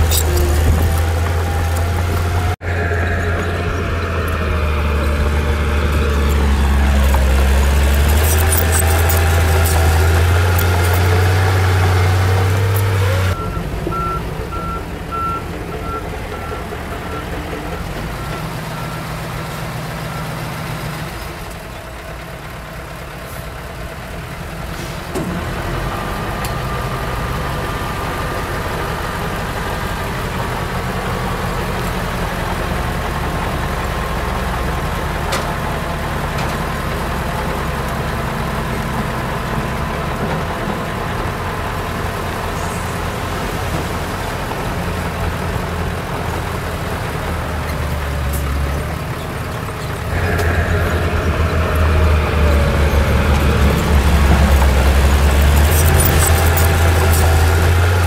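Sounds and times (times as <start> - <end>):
diesel engine running: 0.0 - 58.0
reversing alarm beeping: 12.6 - 20.4.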